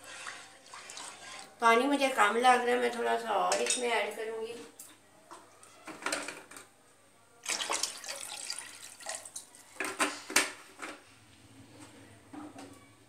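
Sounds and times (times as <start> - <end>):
water pouring into a pot: 0.0 - 1.6, 7.4 - 9.8.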